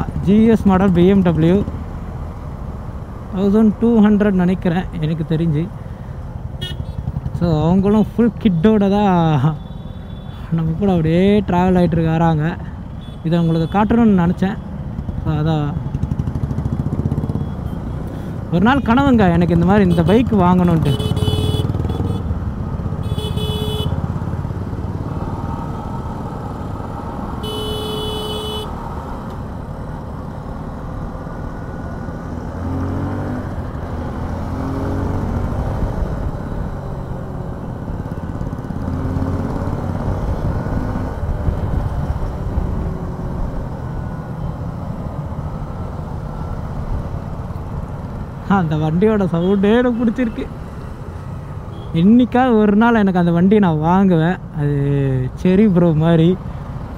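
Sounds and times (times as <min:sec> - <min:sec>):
wind and road noise: 0:00.0 - 0:56.9
vehicle horn tooting: 0:06.6 - 0:07.0, 0:20.8 - 0:22.3, 0:23.0 - 0:24.0, 0:27.4 - 0:28.8, 0:51.7 - 0:52.0
motorcycle engines accelerating: 0:14.8 - 0:23.1, 0:23.9 - 0:27.4, 0:30.3 - 0:44.0.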